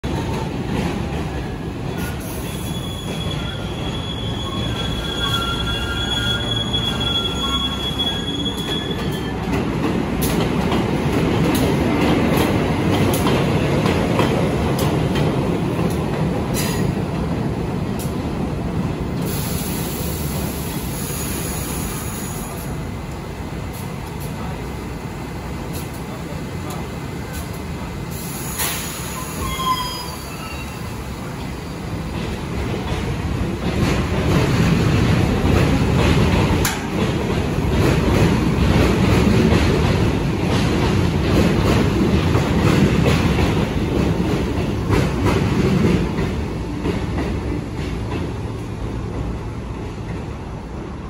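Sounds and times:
train rail rumble: 0:00.0 - 0:51.0
train wheels squealing: 0:01.5 - 0:09.6, 0:28.3 - 0:31.8
wheels clicking over rail joints: 0:32.2 - 0:48.7.

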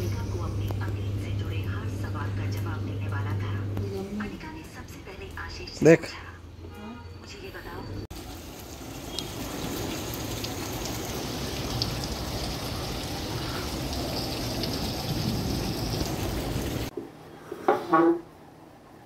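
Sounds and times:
rain pattering on concrete and leaves: 0:08.1 - 0:16.9.

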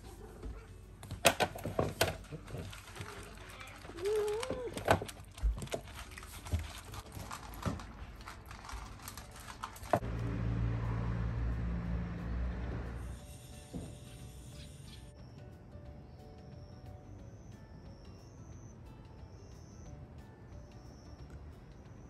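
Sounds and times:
cats eating dry food: 0:02.2 - 0:10.0.

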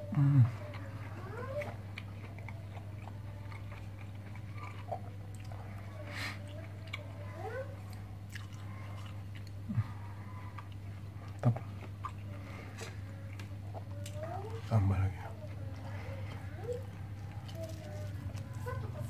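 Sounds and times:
person chewing food: 0:00.0 - 0:19.0
steady low hum: 0:00.0 - 0:19.0.

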